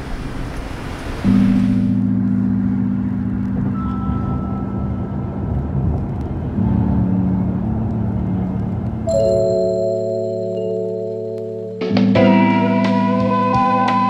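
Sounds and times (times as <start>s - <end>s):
car road noise rumble: 0.0s - 9.8s
music of sustained low chords: 1.3s - 14.0s.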